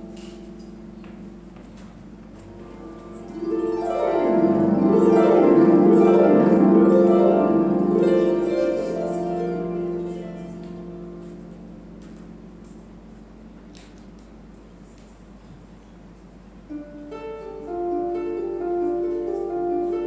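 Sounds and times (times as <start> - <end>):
harp playing: 0.0 - 14.9, 16.6 - 20.0.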